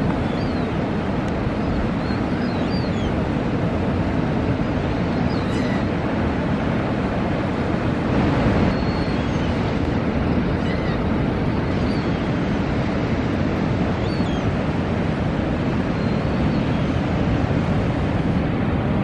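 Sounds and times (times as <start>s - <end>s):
faint high bird chirps: 8.7s - 9.5s.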